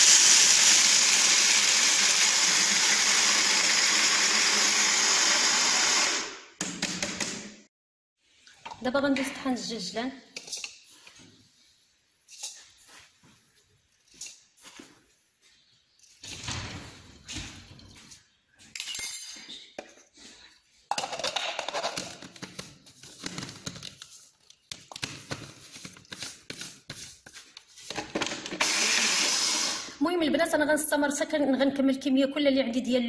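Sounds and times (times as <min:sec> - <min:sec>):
spice grinder motor whirring: 0:00.0 - 0:06.4, 0:28.6 - 0:29.9.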